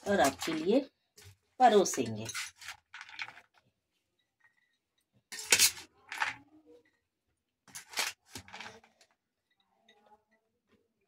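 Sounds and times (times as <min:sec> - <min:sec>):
spoon scraping steel bowl: 0:00.0 - 0:03.4, 0:04.6 - 0:06.2.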